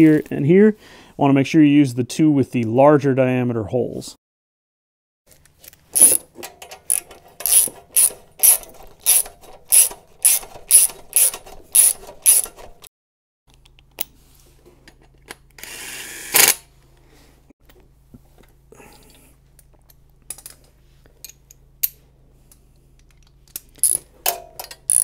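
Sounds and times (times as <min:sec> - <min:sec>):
ratchet wrench clicking: 0:06.0 - 0:12.6, 0:23.8 - 0:24.0, 0:24.6 - 0:25.0
impact driver running: 0:07.5 - 0:12.5.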